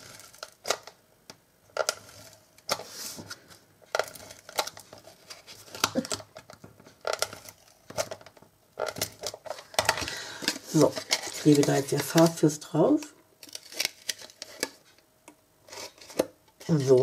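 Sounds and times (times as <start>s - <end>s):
paper rustling: 8.9s - 14.9s.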